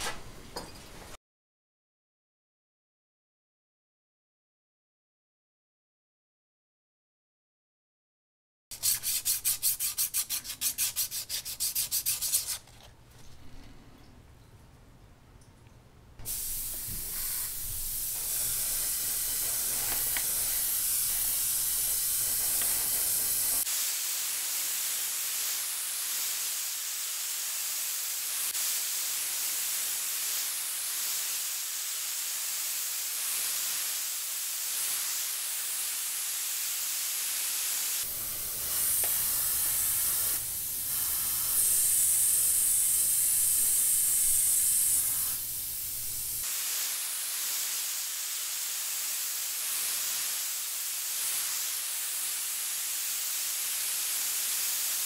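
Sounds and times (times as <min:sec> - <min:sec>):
airbrush hissing: 0:08.7 - 0:12.7, 0:16.2 - 0:55.0.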